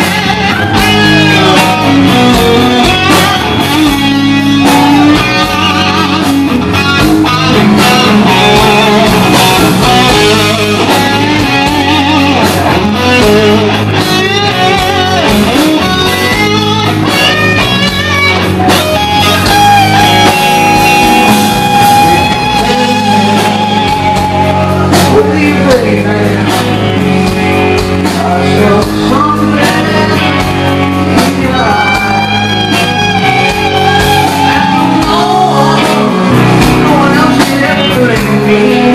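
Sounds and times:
electric guitar solo: 0.0 - 38.9
live rock band: 0.0 - 38.9.

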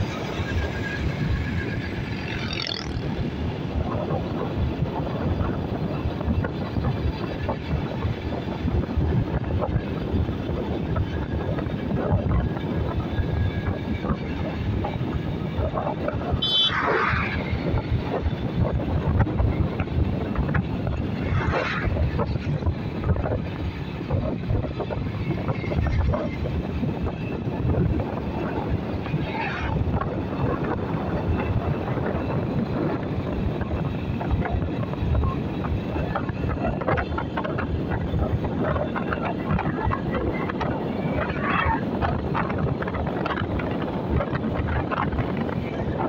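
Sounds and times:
motorcycle engine running: 0.0 - 16.7
wind buffeting microphone: 0.0 - 46.0
car passing: 16.4 - 18.6, 21.0 - 23.1.

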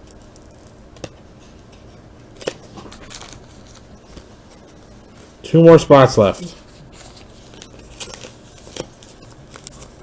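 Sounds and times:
plastic crinkling: 2.4 - 5.3, 6.6 - 10.0.

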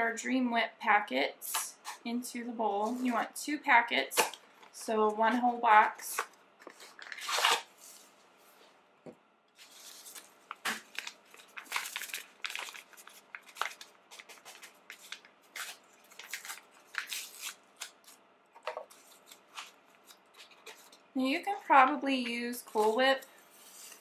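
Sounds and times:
paper envelopes tearing and crinkling: 6.6 - 7.8, 9.6 - 18.2, 18.8 - 21.0.

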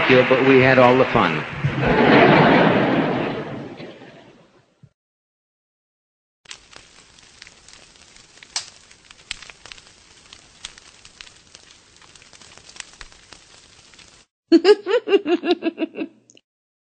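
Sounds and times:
record surface crackle: 6.5 - 14.3.

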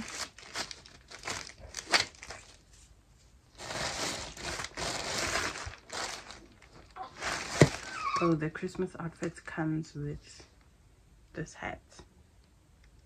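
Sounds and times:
packaging crinkling: 0.0 - 2.6, 3.5 - 8.4.

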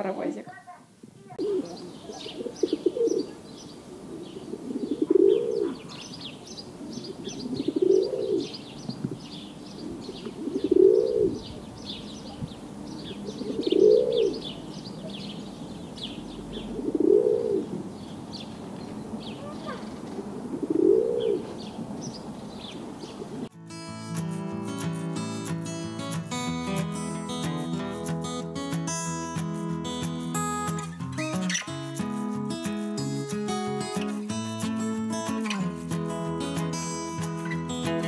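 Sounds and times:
small birds chirping: 0.0 - 23.5
pigeons cooing: 1.4 - 9.0, 9.7 - 15.3, 16.0 - 18.1, 19.0 - 23.5.

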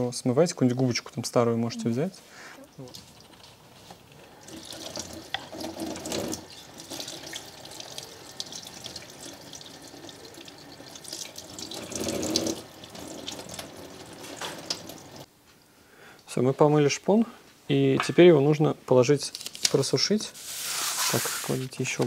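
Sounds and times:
tap water running into a sink: 4.3 - 15.3.

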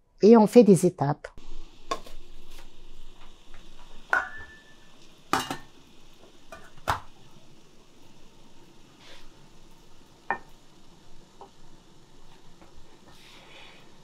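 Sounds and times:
metal pot lid clanking: 4.1 - 5.7.

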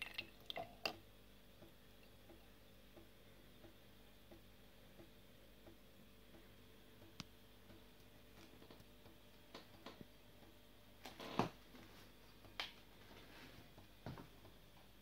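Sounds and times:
faint clicks and taps: 0.8 - 11.2.

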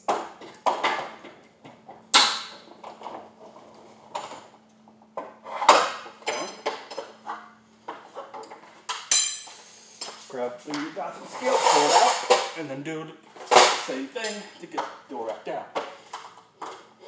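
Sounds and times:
garage door metallic clanks: 5.6 - 7.2.

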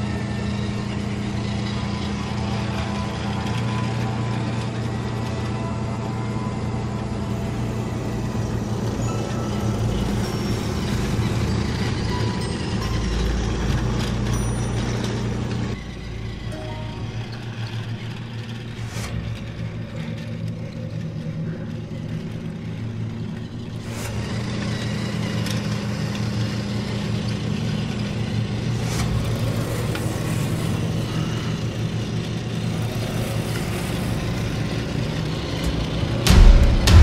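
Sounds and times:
toy train motor whirring: 17.8 - 36.1.

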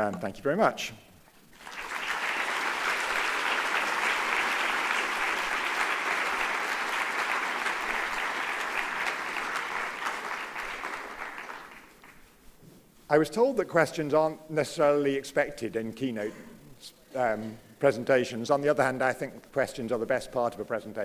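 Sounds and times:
audience applause: 1.5 - 12.2.

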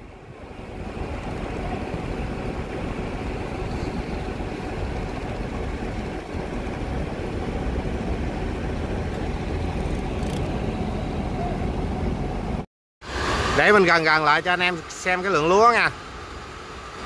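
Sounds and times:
truck engine running at low revs: 0.0 - 12.6.

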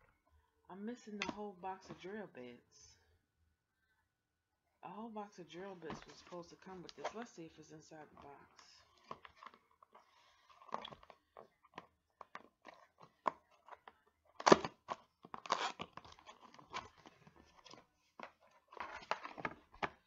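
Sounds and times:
packaging rustling and crinkling: 8.2 - 20.0.

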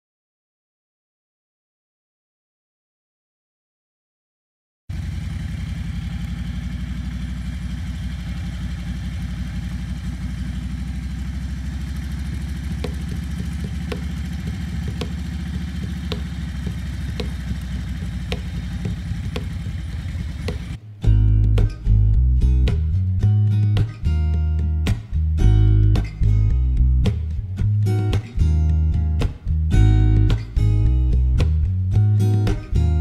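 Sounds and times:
motorcycle engine running: 4.9 - 23.1.

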